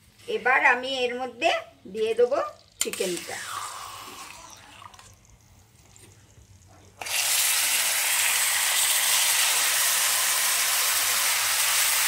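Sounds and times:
chicken sizzling in hot oil: 0:07.0 - 0:12.0.

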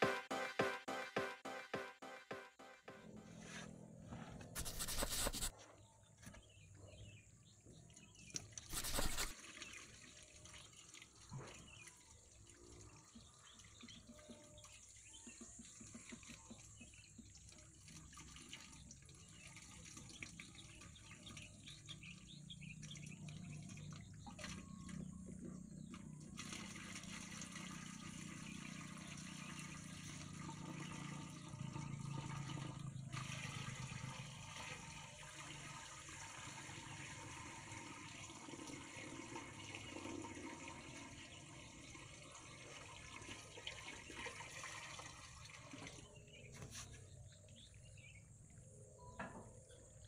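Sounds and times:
water pouring into aquarium: 0:08.4 - 0:15.2, 0:16.0 - 0:25.0, 0:26.3 - 0:46.4.

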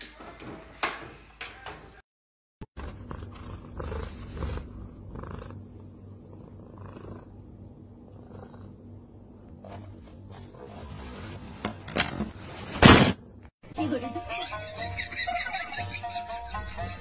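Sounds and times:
cat purring: 0:02.8 - 0:09.4.

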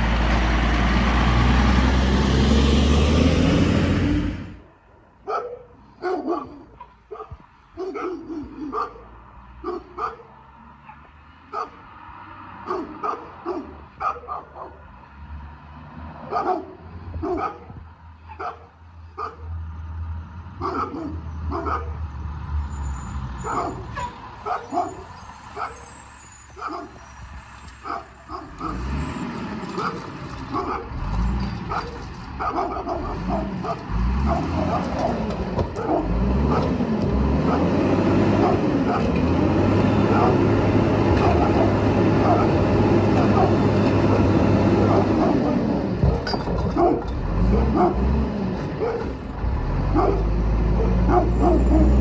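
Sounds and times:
dog barking: 0:05.2 - 0:11.8, 0:12.6 - 0:14.8, 0:16.3 - 0:17.7, 0:18.3 - 0:19.5, 0:20.6 - 0:22.0, 0:23.4 - 0:25.8, 0:26.6 - 0:27.0, 0:27.8 - 0:28.9, 0:29.8 - 0:30.9, 0:31.7 - 0:35.2, 0:35.8 - 0:36.8, 0:38.4 - 0:39.1, 0:40.1 - 0:40.4, 0:41.2 - 0:42.6, 0:43.2 - 0:43.6, 0:44.8 - 0:45.6, 0:46.7 - 0:48.1, 0:48.8 - 0:49.1, 0:49.9 - 0:52.0
garbage truck engine rumbling: 0:21.2 - 0:52.0.

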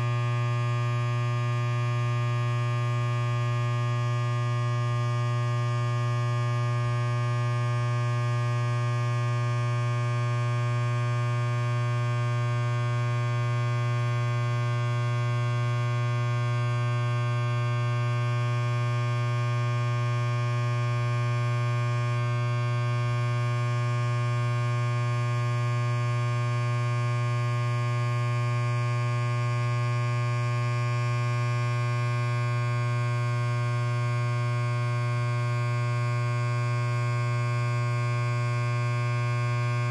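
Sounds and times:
electric hair clipper buzzing: 0:38.6 - 0:39.9.

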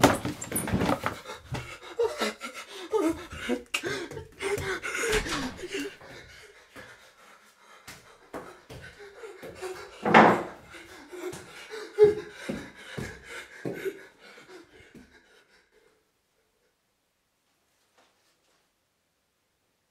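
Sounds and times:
bare feet thumping on tiles: 0:00.0 - 0:01.8, 0:03.2 - 0:06.2, 0:07.9 - 0:13.9
breathy burst: 0:04.5 - 0:06.5.

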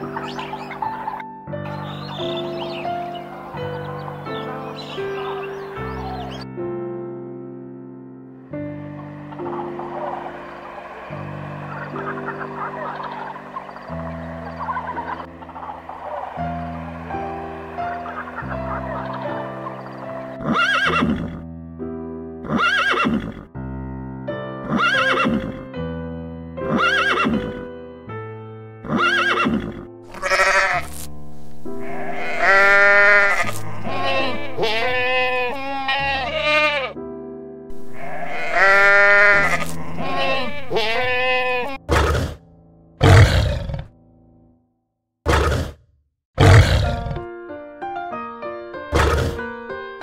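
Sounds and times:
soft background music: 0:00.0 - 0:43.6, 0:46.4 - 0:50.0
goat bleats: 0:30.1 - 0:31.0, 0:31.8 - 0:37.0, 0:37.9 - 0:41.8
lion grunts: 0:41.9 - 0:42.4, 0:43.0 - 0:43.9, 0:46.4 - 0:47.3.

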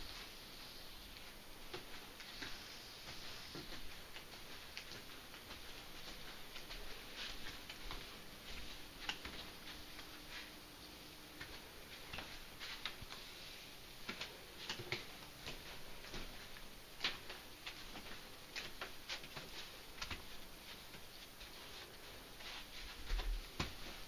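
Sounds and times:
faint steady hum: 0:00.0 - 0:24.0
light clicks and taps: 0:09.0 - 0:10.4.

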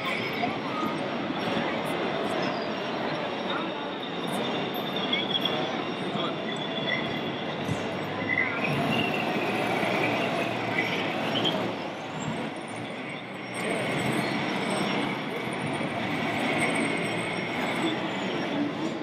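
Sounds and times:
people chattering: 0:00.0 - 0:19.0
model vehicles running: 0:07.3 - 0:19.0.

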